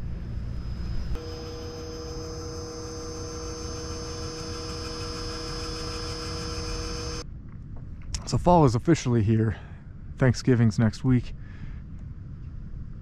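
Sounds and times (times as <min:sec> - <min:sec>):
steady machine hum: 0:00.0 - 0:07.2.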